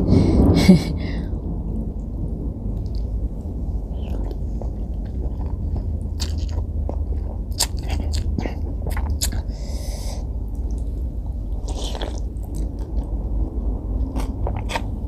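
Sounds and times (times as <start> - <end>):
low hum: 0.0 - 15.0
chewing: 3.9 - 9.5, 11.5 - 13.2, 14.1 - 15.0
person slurping noodles: 11.6 - 12.3.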